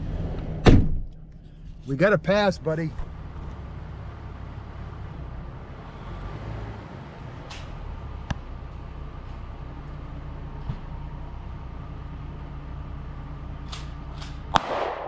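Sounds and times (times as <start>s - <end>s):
vehicle engine idling: 0.0s - 15.0s
sharp crack: 13.6s - 15.0s.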